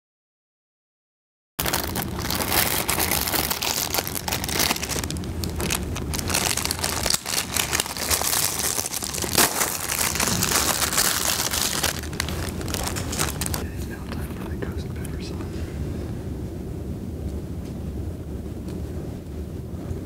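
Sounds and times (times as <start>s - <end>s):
plastic bags crinkling: 1.6s - 14.4s
low hum: 1.6s - 20.0s.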